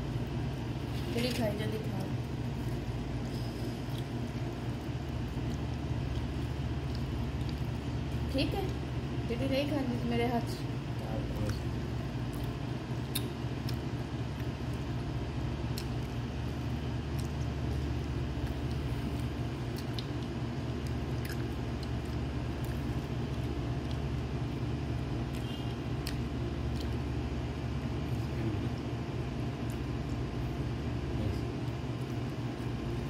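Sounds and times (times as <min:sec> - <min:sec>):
low machine hum: 0:00.0 - 0:33.0
fingers pulling apart meat: 0:11.4 - 0:14.9.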